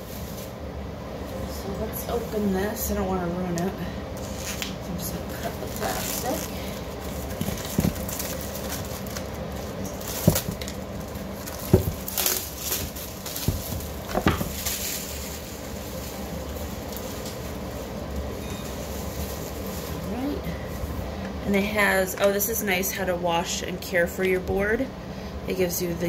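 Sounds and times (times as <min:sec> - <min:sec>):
plastic wrap crinkling: 0:04.2 - 0:21.0
wooden board knocks: 0:11.7 - 0:12.0.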